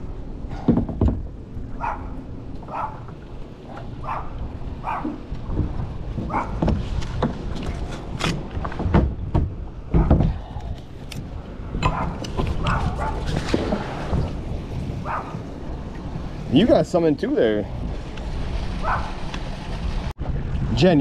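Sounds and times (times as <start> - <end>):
small dog barking and yipping: 1.8 - 3.1, 3.7 - 5.2, 6.3 - 6.6, 15.0 - 15.4, 18.8 - 19.2.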